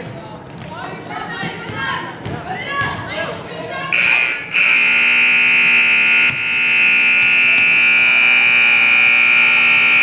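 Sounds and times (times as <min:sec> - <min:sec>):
scoreboard buzzer blasts: 0:03.9 - 0:10.0.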